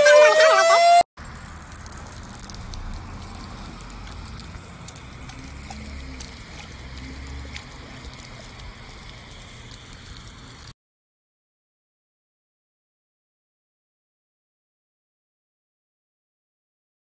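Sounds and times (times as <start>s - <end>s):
water spraying on bricks: 0.8s - 10.8s.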